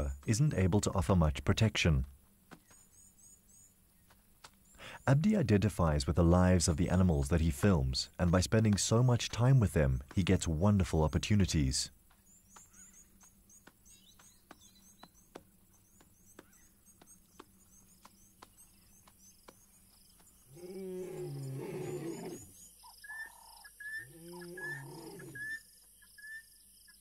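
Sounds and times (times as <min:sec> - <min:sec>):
lion roaring: 0:20.5 - 0:22.5, 0:24.1 - 0:25.5.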